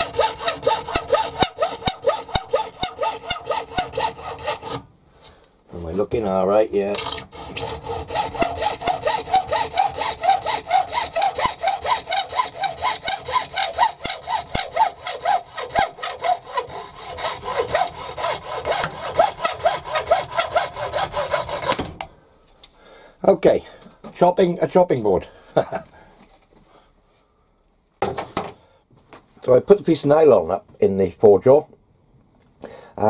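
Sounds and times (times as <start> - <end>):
hacksaw cutting plastic: 0.0 - 4.9, 6.9 - 22.1.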